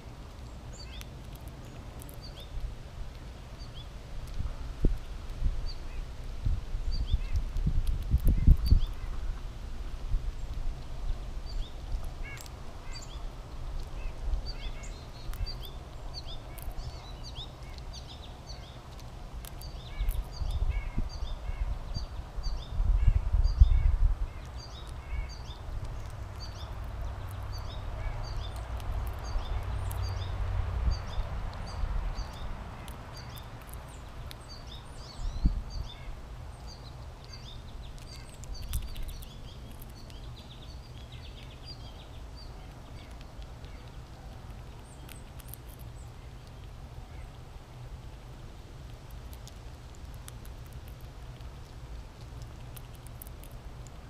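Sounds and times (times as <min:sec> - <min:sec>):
small birds chirping: 0:00.0 - 0:54.0.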